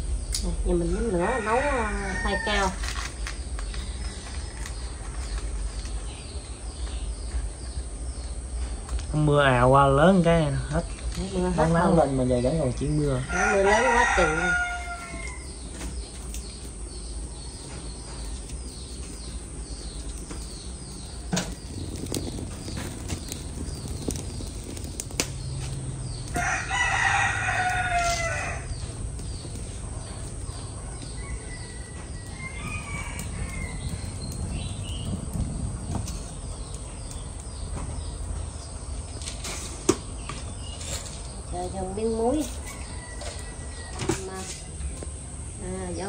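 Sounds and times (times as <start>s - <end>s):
rooster crowing: 1.0s - 2.8s, 13.2s - 15.6s, 26.2s - 28.9s, 30.6s - 34.3s, 42.6s - 44.4s.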